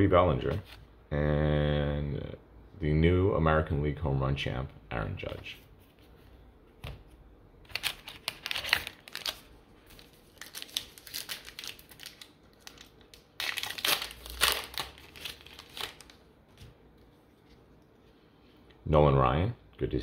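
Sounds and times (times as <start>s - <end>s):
foil wrapper crinkling and tearing: 7.7s - 16.2s.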